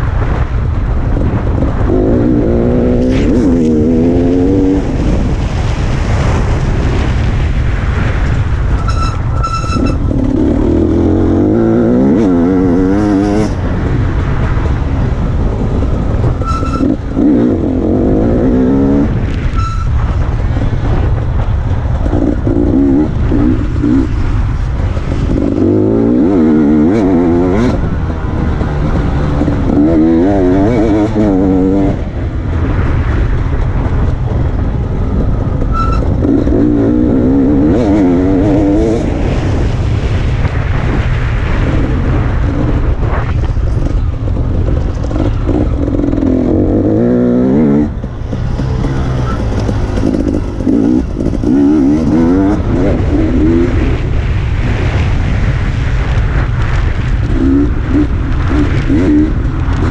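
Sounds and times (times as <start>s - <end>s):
dirt bike engine revving: 1.7s - 5.2s, 8.7s - 14.3s, 16.3s - 20.2s, 22.0s - 32.0s, 35.7s - 39.4s, 45.0s - 54.1s.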